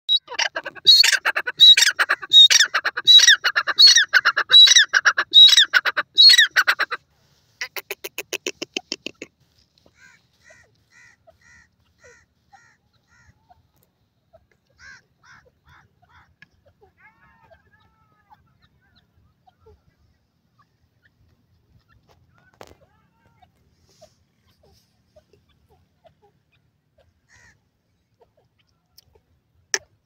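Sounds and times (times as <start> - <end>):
francolin calling: 0.1 - 6.9.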